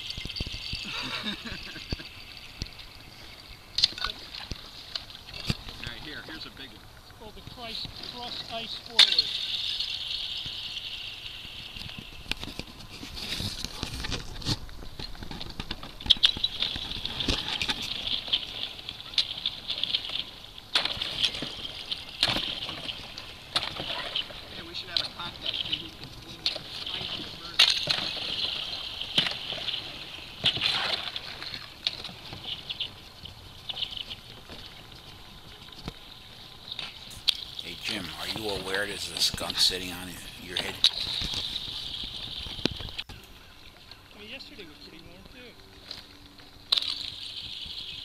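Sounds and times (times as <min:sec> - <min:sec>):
paddle dipping in water: 0:00.0 - 0:43.1
ice crackling against a kayak: 0:07.3 - 0:24.4, 0:25.1 - 0:43.1
water dripping: 0:37.1 - 0:43.1.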